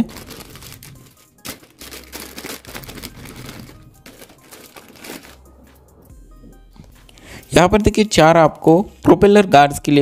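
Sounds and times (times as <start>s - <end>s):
plastic bag crinkling: 0.0s - 5.5s
soft background music: 0.0s - 10.0s.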